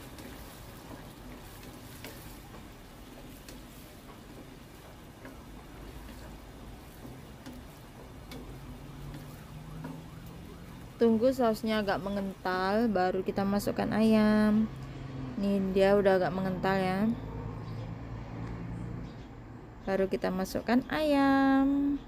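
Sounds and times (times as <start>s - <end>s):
wooden spatula scraping pan: 0.0s - 10.8s
vegetables sizzling in a wok: 0.0s - 15.9s.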